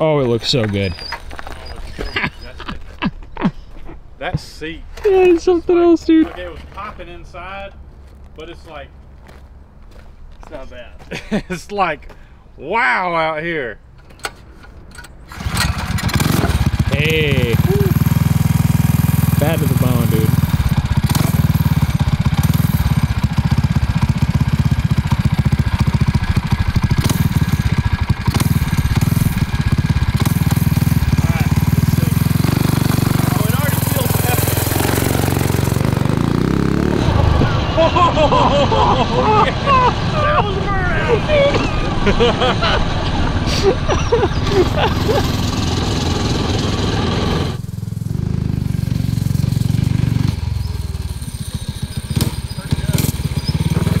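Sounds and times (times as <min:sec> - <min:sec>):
engine idling: 0:15.3 - 0:54.0.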